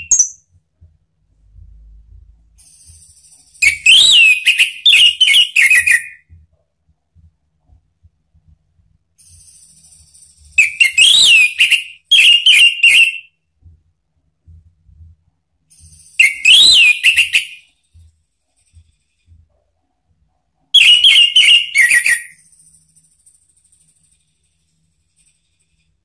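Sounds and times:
thrush singing whistled phrases: 3.1 - 6.2, 10.4 - 13.3, 16.0 - 17.6, 20.8 - 22.4.

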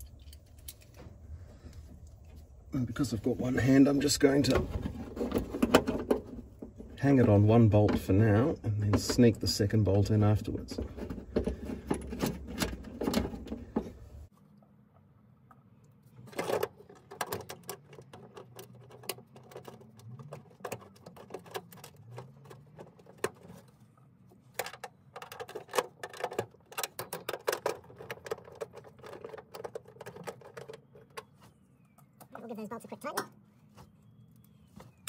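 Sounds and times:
small metallic clicks and rattles: 16.2 - 23.8, 24.5 - 31.4.

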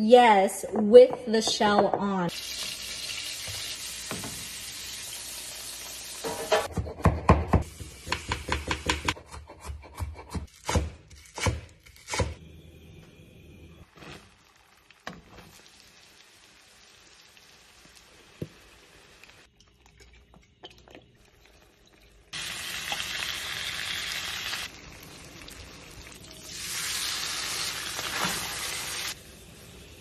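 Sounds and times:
sauce sizzling in a skillet: 2.3 - 6.3, 14.2 - 19.5, 22.4 - 30.0.

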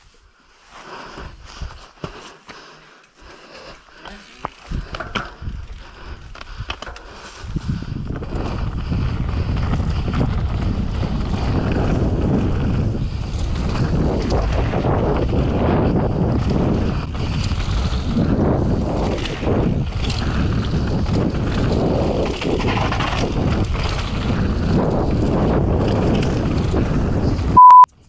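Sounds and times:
bike tyres rolling on dirt: 0.1 - 27.6
bike rattling: 2.0 - 27.6
wind buffeting microphone: 4.6 - 27.6
loud steady beep: 27.6 - 27.9.

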